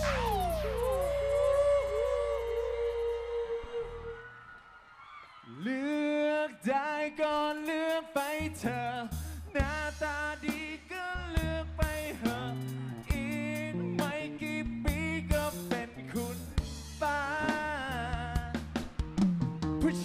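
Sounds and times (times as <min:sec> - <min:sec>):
drum hits: 0:00.0 - 0:01.3
bass: 0:00.0 - 0:04.2, 0:07.2 - 0:20.0
man singing into a microphone: 0:00.0 - 0:04.2, 0:05.5 - 0:18.7, 0:19.8 - 0:20.0.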